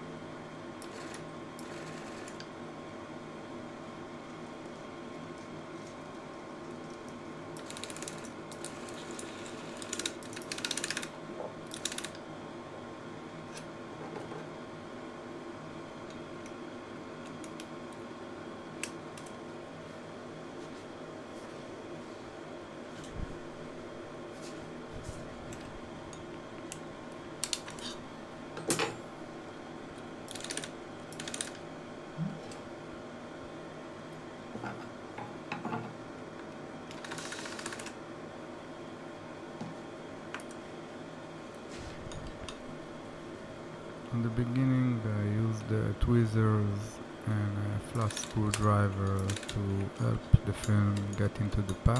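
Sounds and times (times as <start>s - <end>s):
projector motor humming: 0.0s - 51.9s.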